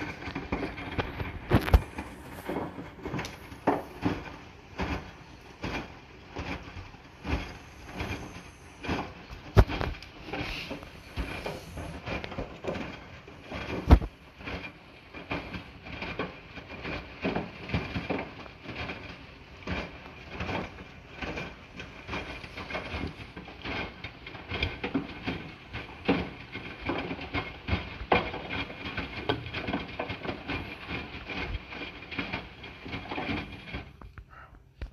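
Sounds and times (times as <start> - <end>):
washing machine drum tumbling: 0.0 - 34.2.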